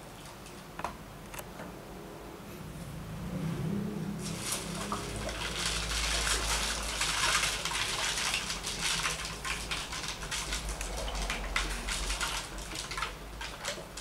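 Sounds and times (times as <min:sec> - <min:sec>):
water gurgling between bottles: 0:04.2 - 0:14.0.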